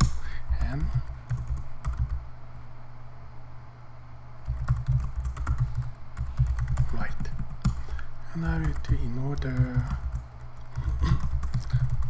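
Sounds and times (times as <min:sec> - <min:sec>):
typing on computer keyboard: 0:00.0 - 0:02.2, 0:04.4 - 0:07.8, 0:08.4 - 0:12.0.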